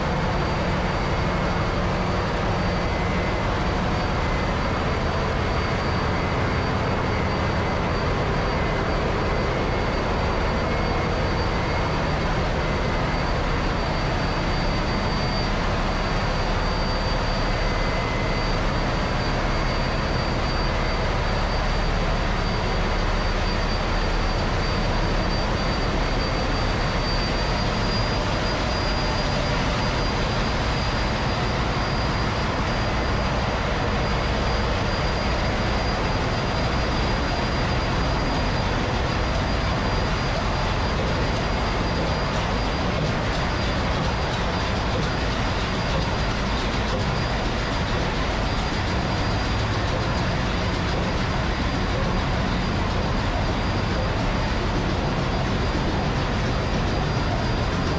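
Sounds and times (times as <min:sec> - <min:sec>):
engine room machinery din: 0:00.0 - 0:57.9
high whine: 0:00.0 - 0:57.9.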